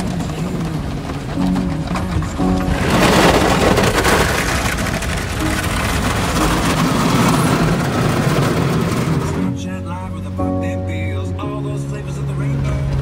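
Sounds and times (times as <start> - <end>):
water rushing on car glass: 0.0 - 9.6
car wash brushes scrubbing: 0.0 - 9.8.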